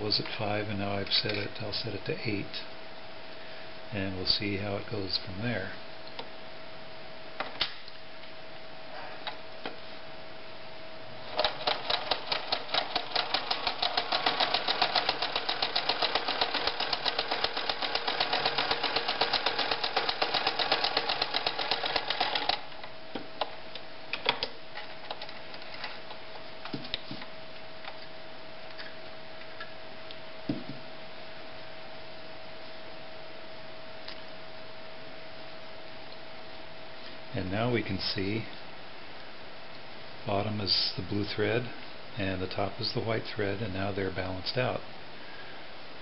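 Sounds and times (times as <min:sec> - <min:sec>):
sewing machine stitching: 0:11.3 - 0:22.6.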